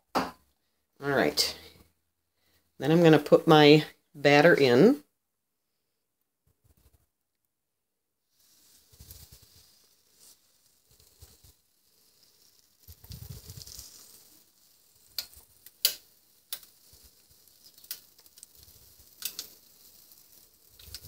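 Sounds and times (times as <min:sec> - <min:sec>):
waffle batter sizzling: 0:08.2 - 0:21.0.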